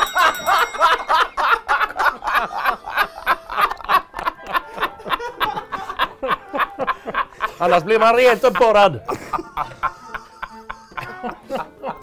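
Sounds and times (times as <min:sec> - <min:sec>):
men laughing hard: 0:00.0 - 0:12.0.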